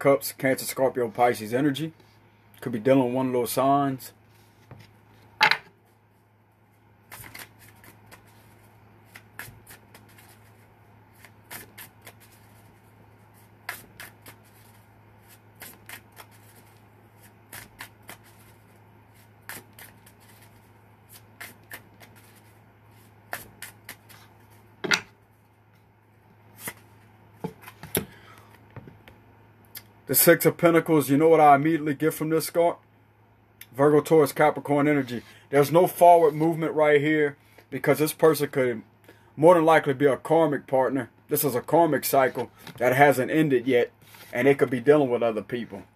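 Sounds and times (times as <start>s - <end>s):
cards being shuffled: 7.1s - 25.0s, 26.6s - 28.1s.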